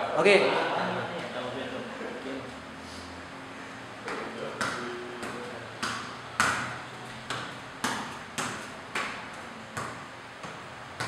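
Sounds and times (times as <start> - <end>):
bare foot slapping football: 4.0 - 11.0.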